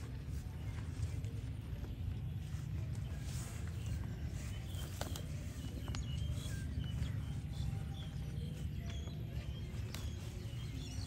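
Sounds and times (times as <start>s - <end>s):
bird chirps: 1.8s - 11.0s.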